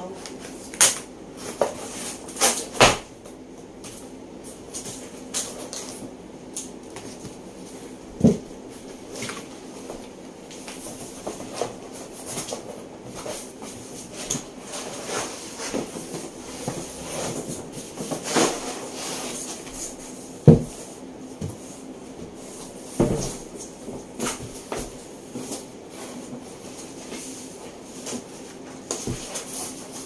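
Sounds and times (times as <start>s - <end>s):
cardboard scraping and rubbing: 10.8s - 20.9s.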